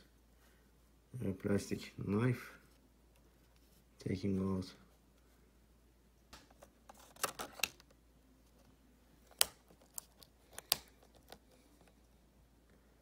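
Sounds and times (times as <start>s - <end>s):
plastic clicks and snaps: 9.2s - 11.5s.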